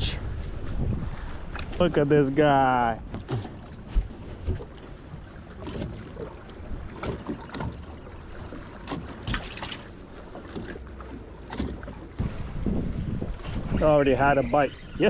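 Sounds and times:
wind buffeting microphone: 0.0 - 6.0, 12.1 - 15.0
fish splashing in water: 5.6 - 12.1.

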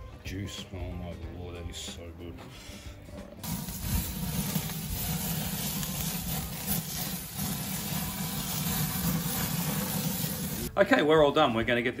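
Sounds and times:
charcoal fire rumbling and crackling: 3.4 - 11.3.

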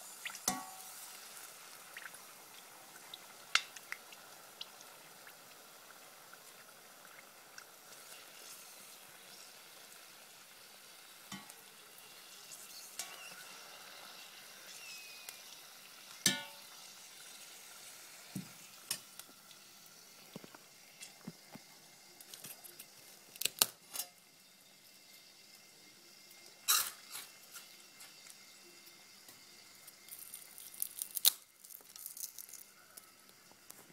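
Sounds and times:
oil sizzling in a pot: 0.0 - 33.9
metal skimmer knocking on pot: 0.5 - 0.8, 16.3 - 16.6.

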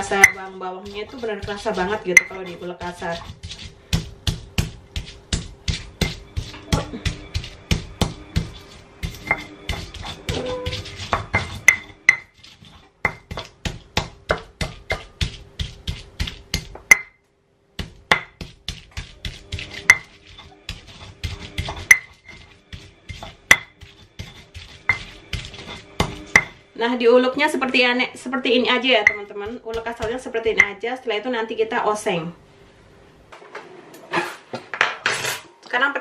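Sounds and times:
stone pestle pounding in mortar: 0.0 - 17.2, 17.8 - 26.6, 28.7 - 30.8.

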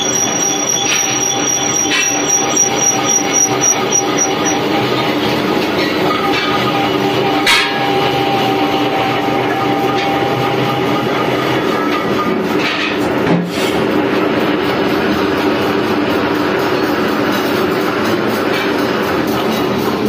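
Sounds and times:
high ringing tone: 0.0 - 4.7
metal lathe droning: 0.0 - 11.5.

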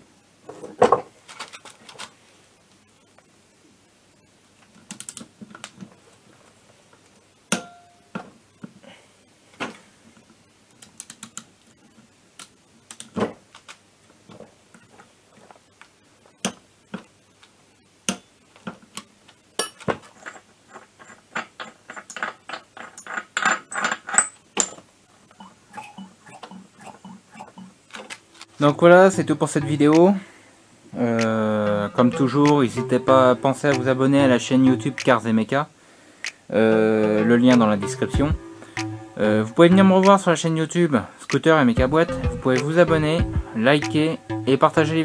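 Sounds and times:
ringing metal clink: 7.6 - 8.1.

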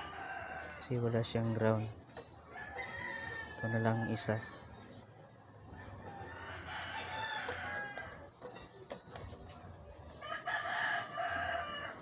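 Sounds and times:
rooster crowing: 0.0 - 1.0, 2.5 - 4.7, 5.7 - 8.3, 10.2 - 12.0.

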